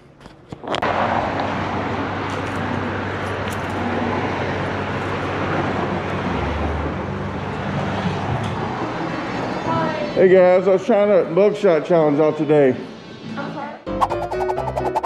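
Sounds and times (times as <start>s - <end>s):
vehicle rushing sound: 13.9s - 15.0s.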